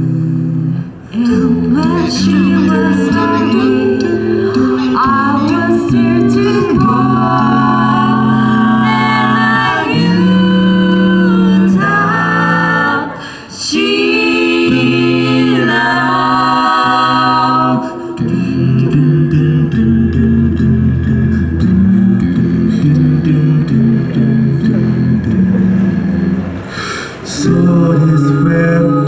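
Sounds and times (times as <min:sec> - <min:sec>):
a cappella group singing: 0:00.0 - 0:29.0.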